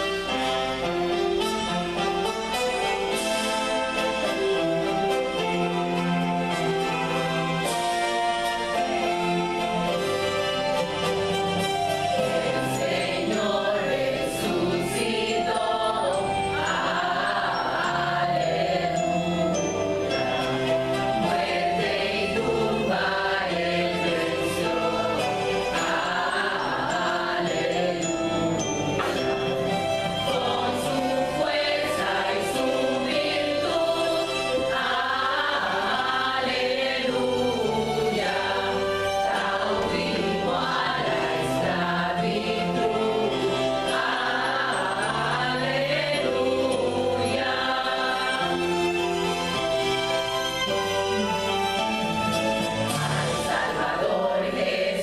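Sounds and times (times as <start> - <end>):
instrumental backing track: 0.0 - 54.9
women's choir singing: 12.0 - 50.4, 52.6 - 55.0.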